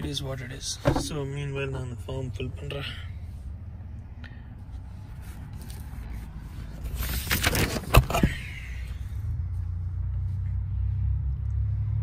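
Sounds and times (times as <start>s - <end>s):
low steady rumble: 0.0s - 12.0s
paper rustling and scraping: 5.1s - 8.2s.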